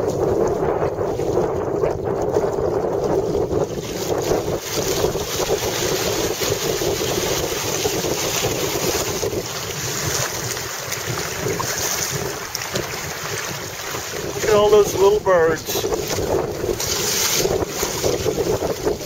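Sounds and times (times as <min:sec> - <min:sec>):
water rushing past hull: 0:00.0 - 0:19.0
wind noise on microphone: 0:00.0 - 0:19.0.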